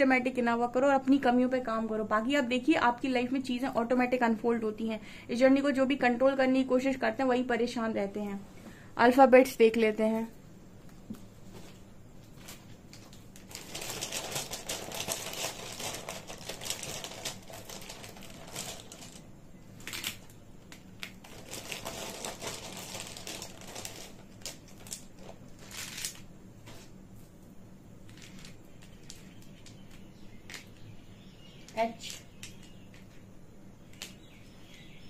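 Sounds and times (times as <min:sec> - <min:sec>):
plastic letters clattering on table: 0:28.1 - 0:30.8.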